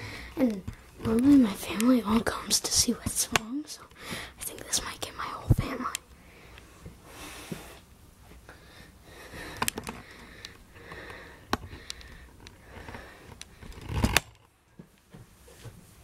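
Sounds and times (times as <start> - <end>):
person breathing hard: 0.0 - 0.4, 3.9 - 4.4, 6.2 - 7.9, 8.5 - 13.9.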